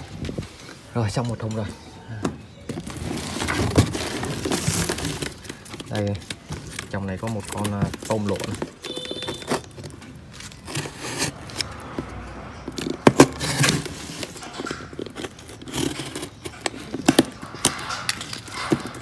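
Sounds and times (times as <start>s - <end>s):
scraping and rustling: 0.0s - 19.0s
sharp clicks and knocks: 5.0s - 19.0s.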